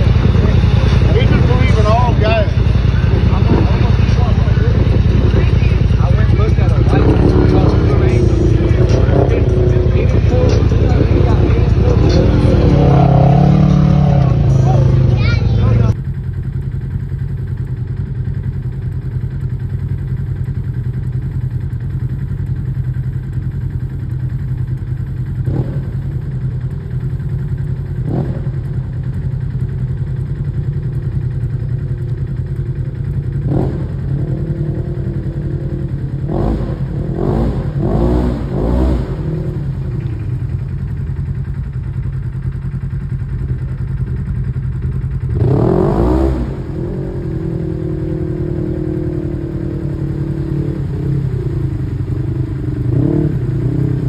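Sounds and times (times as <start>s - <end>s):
off-road vehicle engine revving: 0.0s - 16.0s, 22.0s - 42.0s, 42.7s - 54.0s.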